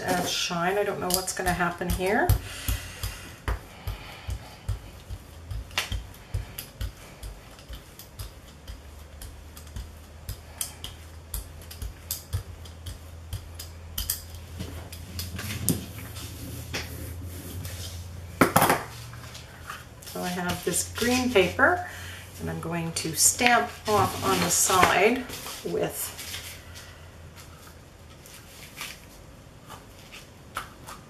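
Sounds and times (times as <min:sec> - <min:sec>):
steady low hum: 0:00.0 - 0:31.0
paint dabbing taps and clicks: 0:01.0 - 0:16.0.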